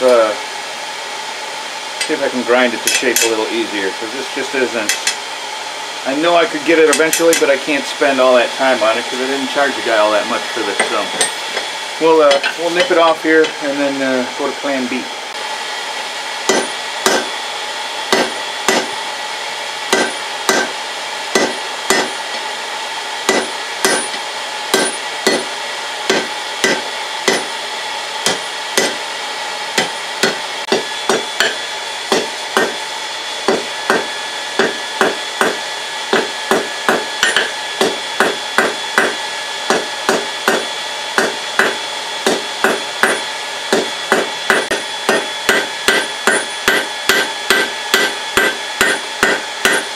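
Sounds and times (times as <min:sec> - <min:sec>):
hammer blows on anvil: 0:10.7 - 0:13.6, 0:16.4 - 0:17.4, 0:18.1 - 0:19.0, 0:19.9 - 0:22.4, 0:23.3 - 0:27.6, 0:28.2 - 0:29.0, 0:29.8 - 0:32.8, 0:33.4 - 0:49.9.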